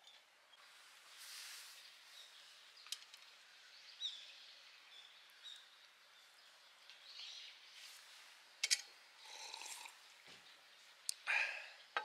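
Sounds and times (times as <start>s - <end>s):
bird chirps: 1.6s - 8.0s.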